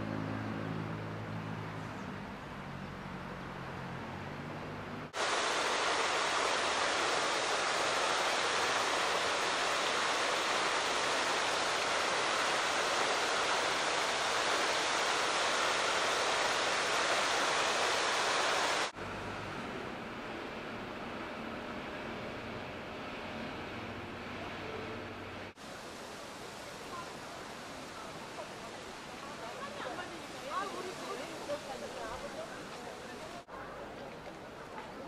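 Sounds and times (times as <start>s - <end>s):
fountain water splashing: 5.1s - 19.0s, 25.5s - 35.0s.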